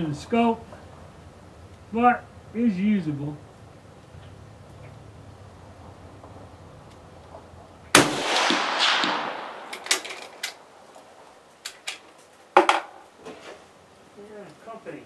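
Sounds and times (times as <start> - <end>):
rifle shot with echo: 7.9 - 11.2
rifle bolt clicks: 8.4 - 10.6
small metallic clicks: 9.7 - 11.0.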